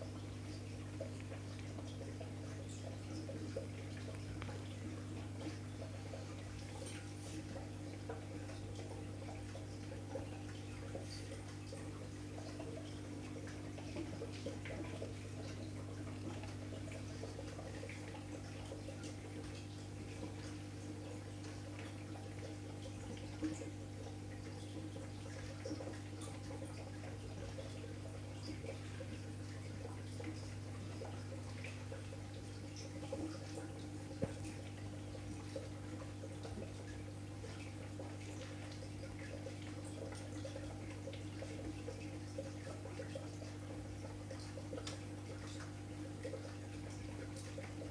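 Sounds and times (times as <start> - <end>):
aquarium equipment humming: 0.0 - 47.9
water bubbling and dripping: 0.0 - 47.9.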